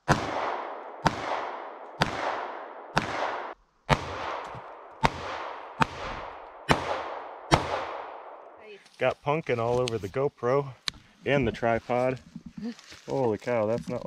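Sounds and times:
pistol shots echoing: 0.0 - 8.5.

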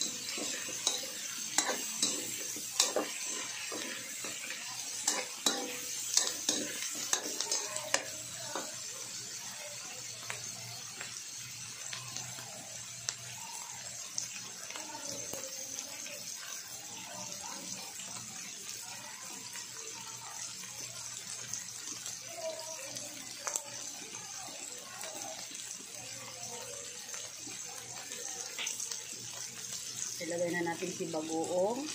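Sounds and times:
metal spatula scraping pan: 0.0 - 8.1
food sizzling in a wok: 0.0 - 31.9.

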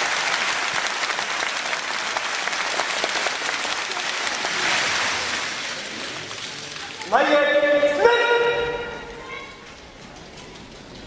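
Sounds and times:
audience applause: 0.0 - 7.2.

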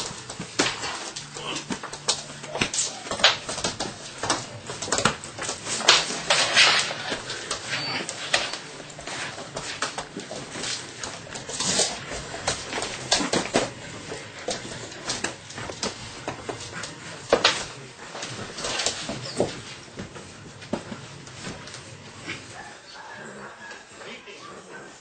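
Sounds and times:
puppy claws clicking on floor: 0.0 - 19.8.

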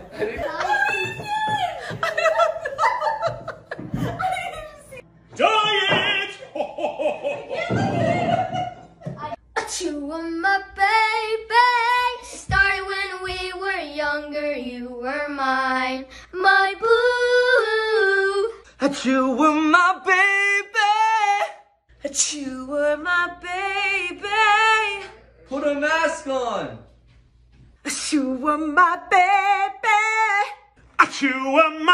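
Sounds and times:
woman singing unaccompanied: 9.6 - 20.1, 22.1 - 25.2, 27.9 - 30.6.

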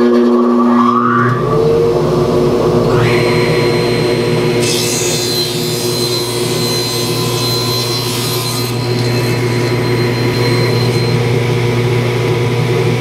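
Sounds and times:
table saw cutting plywood: 0.0 - 12.5
saw blade spinning free: 2.9 - 11.2.

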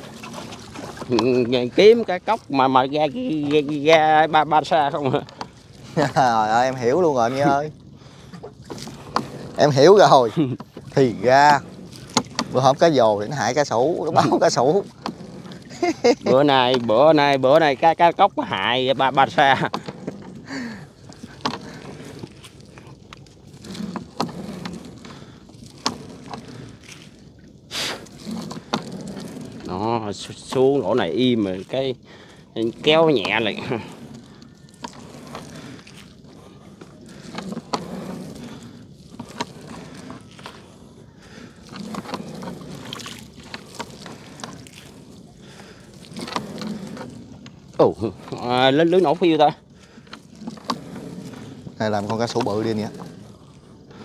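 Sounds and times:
water sloshing: 0.0 - 54.0
clicks and knocks on boat: 8.0 - 15.9.

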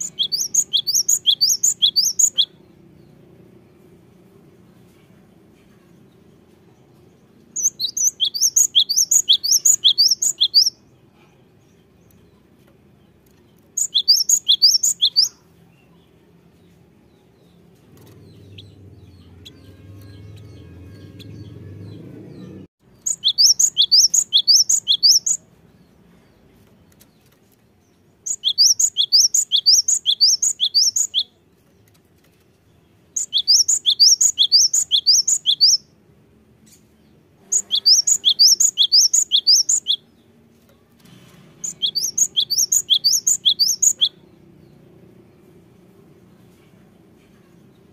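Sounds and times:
great tit singing: 0.0 - 3.2, 7.6 - 12.5, 13.3 - 16.2, 17.2 - 25.4, 28.2 - 31.3, 33.2 - 36.0, 37.1 - 40.4, 41.6 - 44.8.

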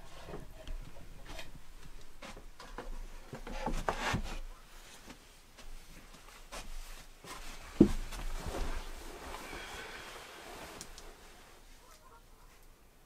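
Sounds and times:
wood creaking and scraping: 0.0 - 11.6
clothing rustling: 4.7 - 11.9.

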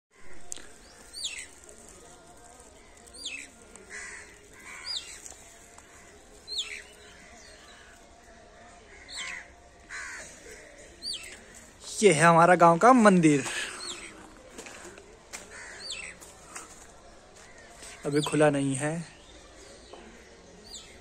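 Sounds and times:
crows cawing: 2.7 - 11.8, 14.6 - 16.7.

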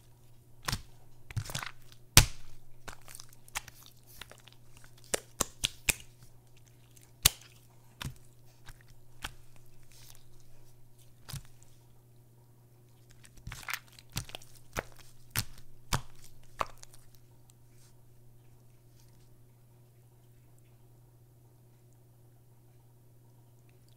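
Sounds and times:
faint low hum: 0.0 - 23.9
slime wet clicks and pops: 0.6 - 6.2, 7.2 - 10.2, 13.4 - 17.1.

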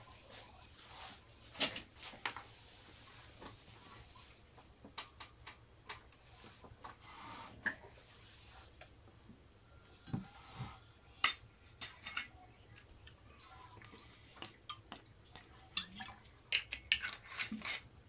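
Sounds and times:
brush on paper: 0.1 - 1.3.

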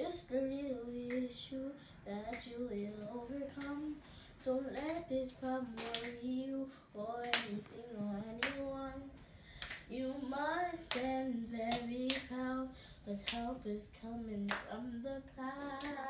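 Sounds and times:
girl singing unaccompanied: 0.0 - 9.2, 9.8 - 16.0
sharp hand clap: 3.6 - 3.8, 5.8 - 6.2, 7.2 - 7.6, 8.4 - 8.7, 9.6 - 9.9, 10.9 - 11.1, 11.7 - 12.3, 13.2 - 13.5, 14.5 - 14.7, 15.8 - 16.0.

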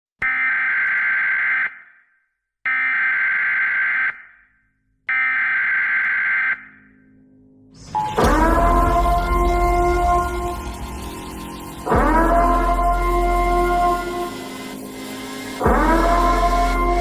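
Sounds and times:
alarm buzzer blasts: 0.2 - 2.0, 2.7 - 4.3, 5.1 - 6.8
music: 6.9 - 17.0.

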